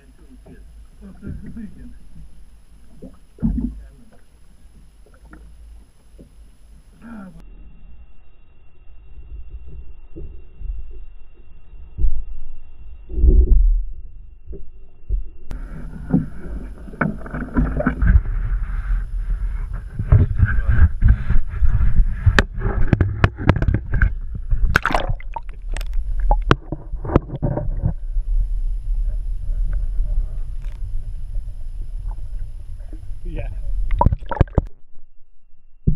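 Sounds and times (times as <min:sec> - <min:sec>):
muffled underwater rumble: 0:00.0 - 0:35.9
sharp knocks and crackles: 0:01.2 - 0:06.5, 0:14.4 - 0:28.4
water splashing against camera: 0:15.5 - 0:34.8.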